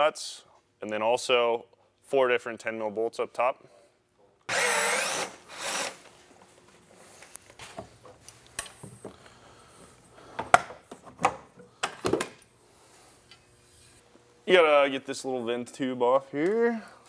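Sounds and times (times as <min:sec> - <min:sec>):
cordless power driver whirring: 0:04.5 - 0:06.0.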